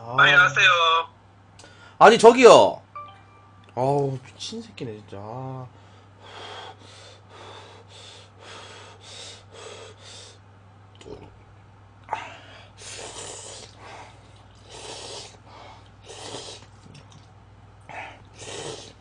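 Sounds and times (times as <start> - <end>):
person slurping noodles: 12.8 - 13.8, 14.6 - 15.4, 16.0 - 16.9, 18.3 - 19.0.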